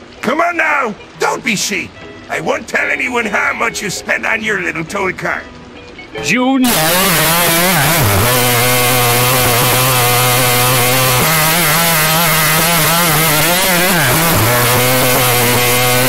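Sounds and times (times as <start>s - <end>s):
buzzing motor drone: 6.7s - 16.0s.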